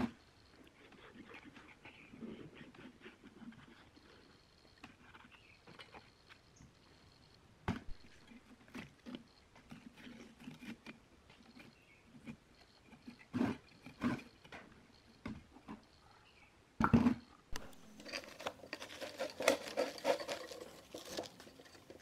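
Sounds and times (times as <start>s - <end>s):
hand tool scraping metal rim: 8.2s - 14.5s, 17.6s - 22.0s.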